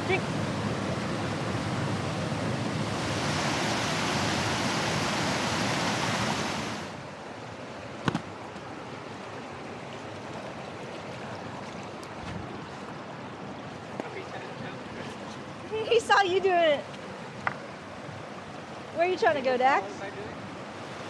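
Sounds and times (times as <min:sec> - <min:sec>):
rushing stream water: 0:00.0 - 0:21.0.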